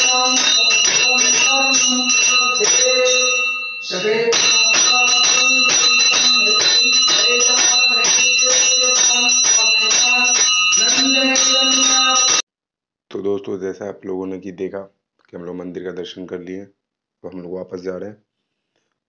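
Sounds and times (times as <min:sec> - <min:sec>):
hand bell ringing rapidly: 0:00.0 - 0:12.4.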